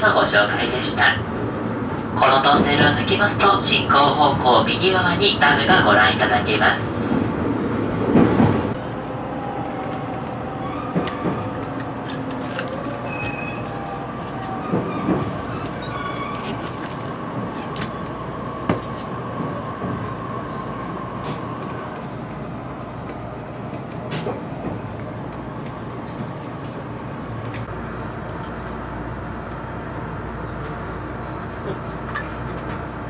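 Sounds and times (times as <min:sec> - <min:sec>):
low train rumble: 0:00.0 - 0:33.0
train wheel squeal: 0:13.0 - 0:13.8, 0:14.4 - 0:16.7.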